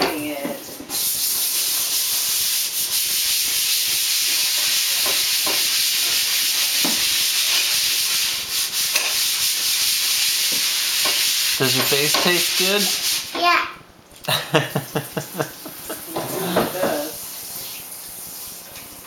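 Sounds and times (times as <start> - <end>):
steady hiss: 4.0 - 13.4, 14.4 - 16.2.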